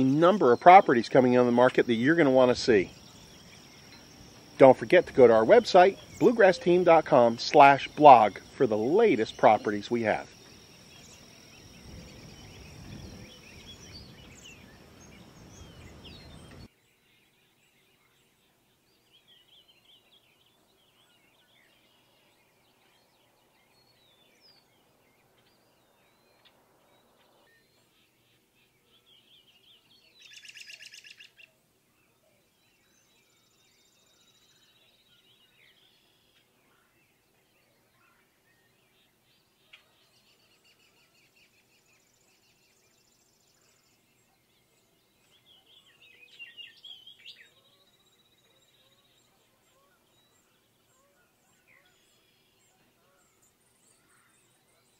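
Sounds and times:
faint bird chirps: 0:00.0 - 0:54.9
insect buzz: 0:01.2 - 0:16.7.

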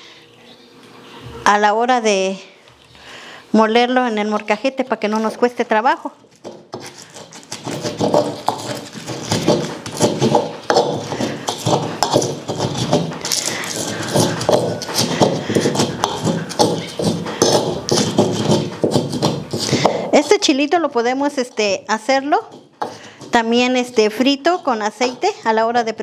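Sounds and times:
stone pestle grinding in bowl: 0:06.3 - 0:20.6, 0:21.4 - 0:26.0.

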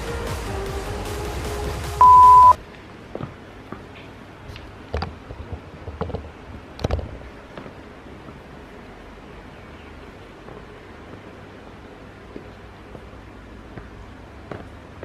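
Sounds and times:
brief steady beep: 0:02.0 - 0:02.6.

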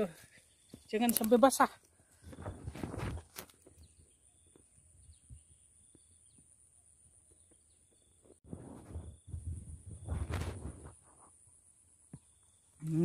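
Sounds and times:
faint bird chirps: 0:03.7 - 0:10.2.

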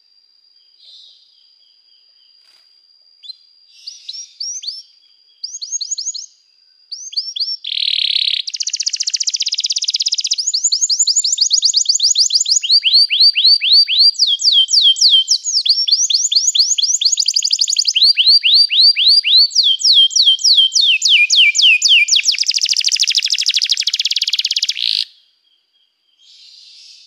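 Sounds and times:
canary singing: 0:03.2 - 0:06.3, 0:06.9 - 0:25.1.

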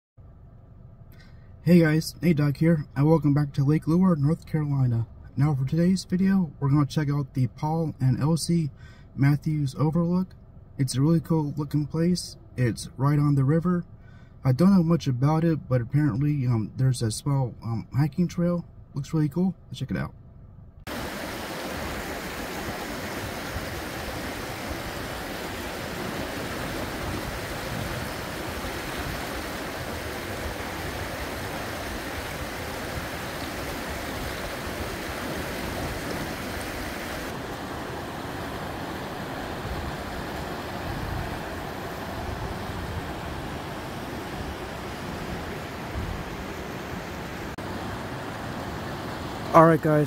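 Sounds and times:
river rushing over rocks: 0:20.9 - 0:50.0.

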